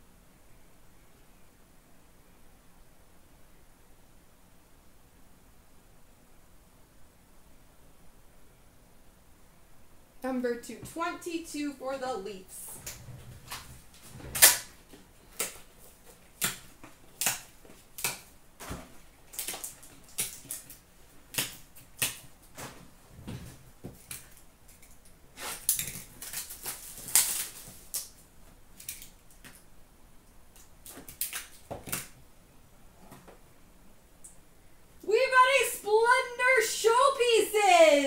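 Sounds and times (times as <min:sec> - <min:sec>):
card packs clicking and crinkling: 0:25.5 - 0:28.2.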